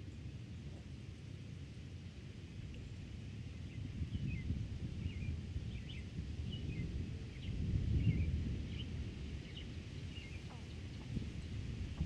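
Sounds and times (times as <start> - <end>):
wind gusting over microphones: 3.4 - 12.0.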